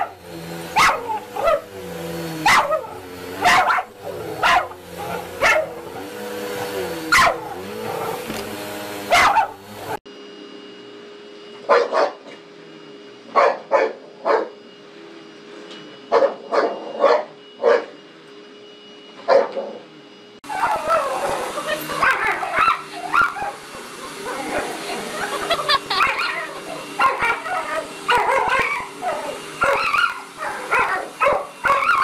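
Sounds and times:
dogs barking: 0.0 - 1.8, 2.4 - 8.4, 9.0 - 9.7, 11.7 - 12.3, 13.3 - 14.6, 16.1 - 17.9, 19.3 - 19.8, 20.4 - 32.0
vacuum cleaner whine: 0.0 - 32.0.

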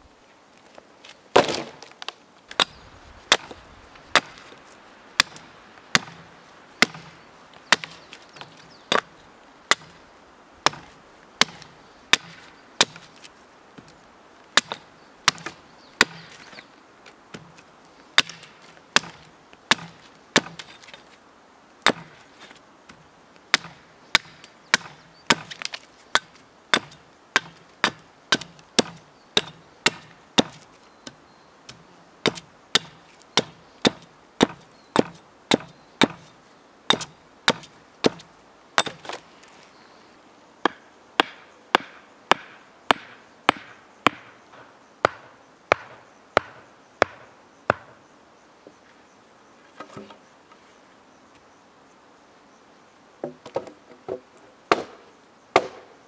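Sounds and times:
wood chips splitting: 1.0 - 10.0, 10.6 - 14.0, 14.6 - 16.6, 17.3 - 21.2, 21.8 - 30.8
hatchet chopping wood: 1.4 - 1.9, 2.5 - 4.6, 5.2 - 9.1, 9.7 - 10.0, 10.6 - 13.9, 14.6 - 16.6, 18.2 - 21.0, 21.8 - 22.2, 23.5 - 30.7, 31.7 - 36.3, 36.9 - 39.2, 40.6 - 48.0, 53.2 - 55.9.

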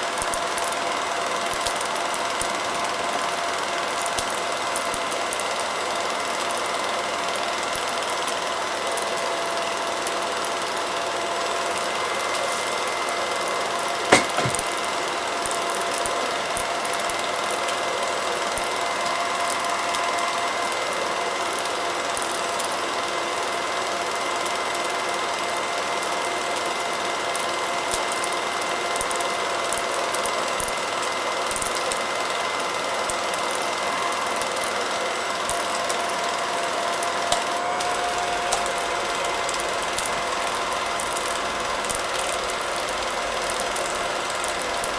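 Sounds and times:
movie projector whirring: 0.0 - 44.9
sharp click: 14.1 - 14.7.

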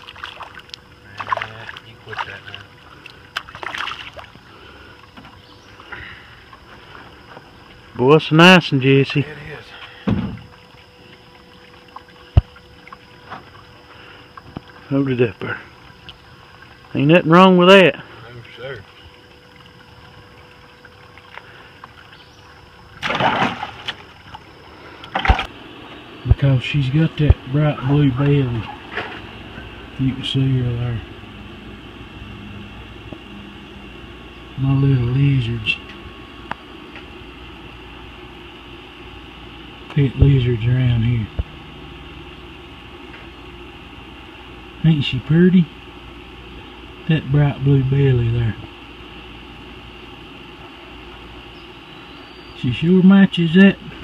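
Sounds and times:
fish splashing in plastic bucket: 0.0 - 4.4, 22.9 - 24.5
fish splashing in water: 0.0 - 7.9, 18.1 - 25.5.

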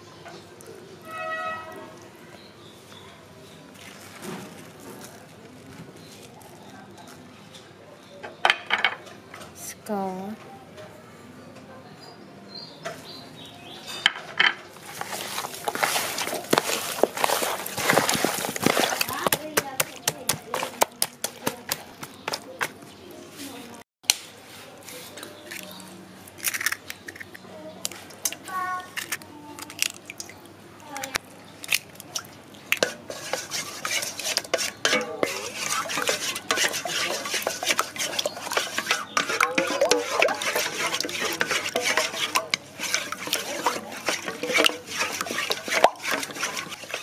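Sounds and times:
chicken slapping in plastic bowl: 14.9 - 22.8, 32.8 - 47.0.

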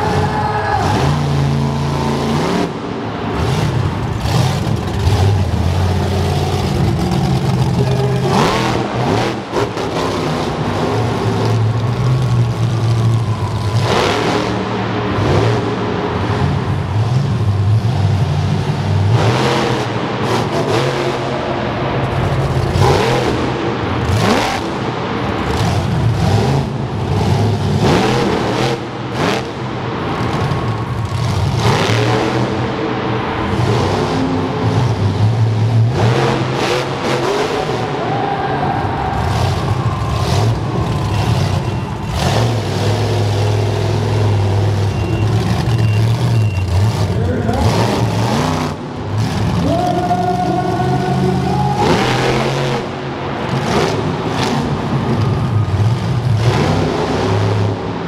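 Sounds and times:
monster truck engine revving: 0.0 - 58.0.

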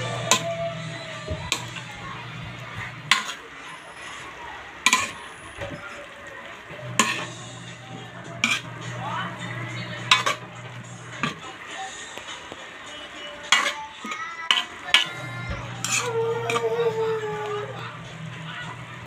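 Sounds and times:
spatula clanking against pan: 0.0 - 0.7, 1.4 - 1.8, 3.0 - 3.4, 4.8 - 5.2, 6.9 - 7.4, 8.4 - 8.7, 10.0 - 11.4, 13.4 - 16.8
spatula scraping cabbage in wok: 2.8 - 5.3, 6.9 - 11.6, 13.4 - 17.2.

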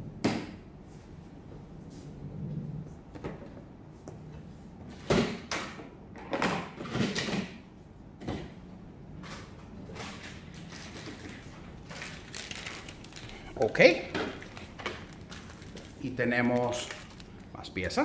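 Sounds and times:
hard plastic parts clattering: 10.0 - 17.5
packaging rustling: 10.1 - 17.8.

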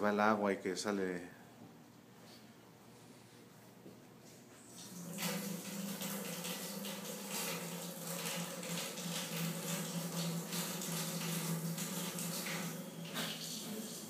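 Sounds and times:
water running into a sink: 4.8 - 14.0.

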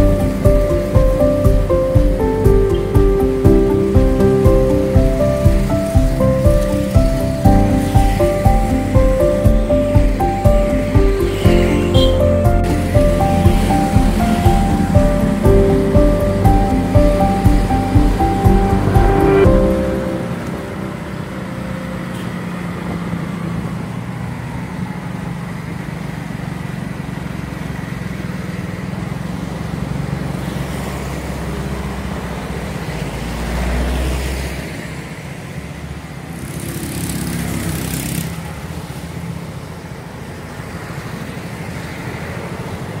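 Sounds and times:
hissing rush: 0.0 - 22.1
engine and road rumble: 0.0 - 43.0
motorcycles and cars passing: 0.0 - 43.0.

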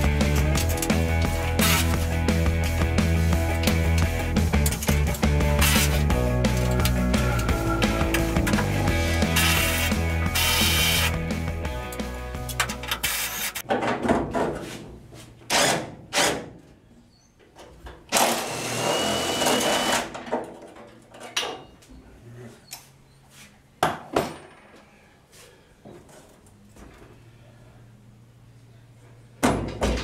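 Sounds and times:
cordless driver whining: 3.7 - 11.2, 18.1 - 20.1.

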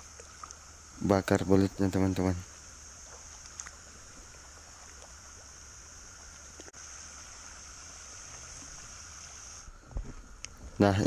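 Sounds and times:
night insects chorus: 0.0 - 11.0.

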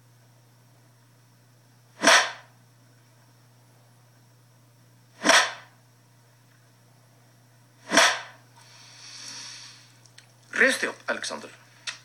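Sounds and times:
cane striking skin: 2.0 - 2.5, 5.2 - 5.7, 7.9 - 8.4.

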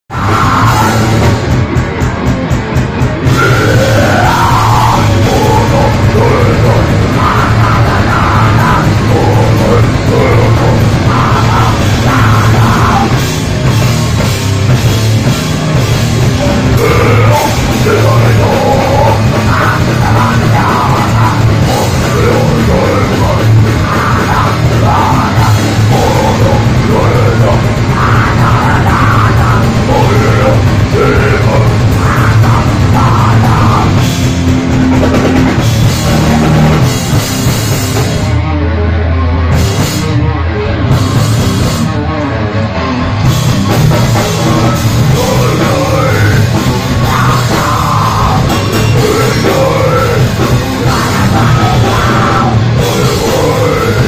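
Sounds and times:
shouted vocals: 0.1 - 1.2, 3.3 - 13.2, 16.7 - 34.1, 44.2 - 54.0
punk band playing: 0.1 - 54.0.

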